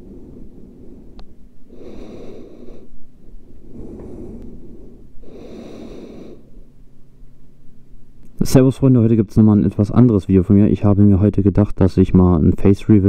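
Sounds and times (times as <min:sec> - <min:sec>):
person breathing heavily: 0:00.0 - 0:06.7.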